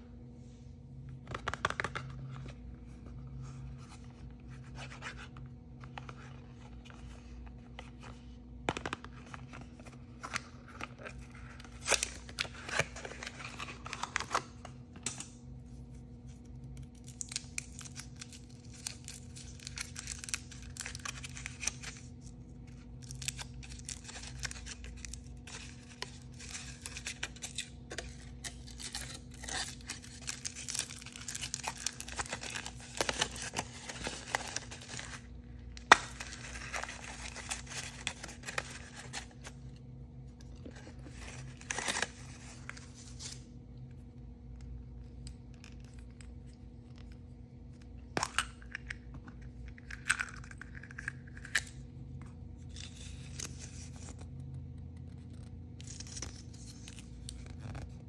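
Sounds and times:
steady low hum: 0.0s - 58.0s
foil wrapper crinkling: 22.8s - 39.5s.

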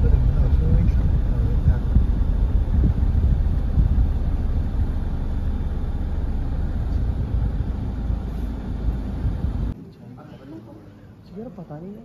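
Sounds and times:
car engine and tyres rumble: 0.0s - 9.8s.

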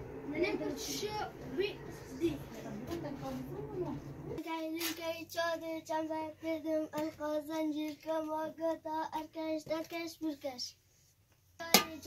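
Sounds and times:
child singing a chant: 4.4s - 10.8s.

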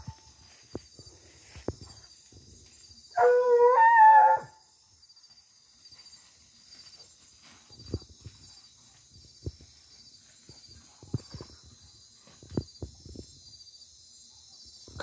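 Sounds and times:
hunting dog baying: 3.2s - 4.5s.

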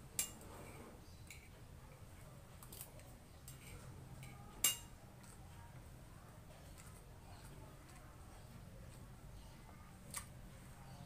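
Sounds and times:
metal spoon clinking on plate: 3.5s - 4.9s.

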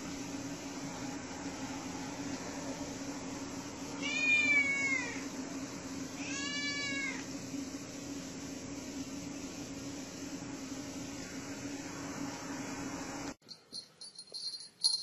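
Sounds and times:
cat meowing: 4.0s - 5.2s, 6.2s - 7.2s.

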